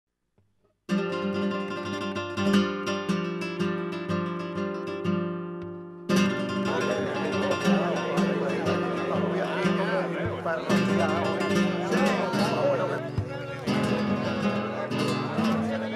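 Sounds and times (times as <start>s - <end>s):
strummed acoustic guitar: 0.9s - 15.9s
murmur of voices: 6.1s - 15.9s.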